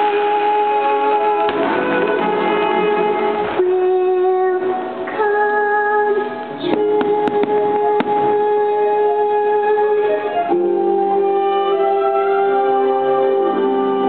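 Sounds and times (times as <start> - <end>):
soundtrack music with held notes: 0.0 - 14.0
firework pops: 6.7 - 8.4.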